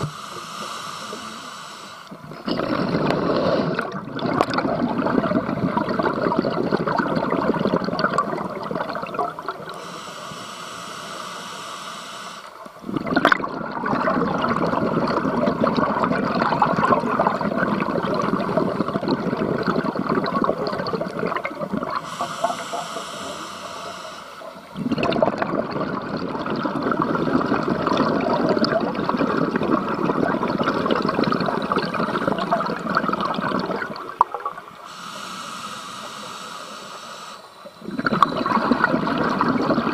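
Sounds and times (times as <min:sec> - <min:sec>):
inhale hiss through regulator: 0:00.0 - 0:02.3, 0:03.0 - 0:04.0, 0:09.6 - 0:12.9, 0:21.9 - 0:24.7, 0:34.8 - 0:38.0
exhaled bubbles from scuba regulator: 0:00.0 - 0:39.9.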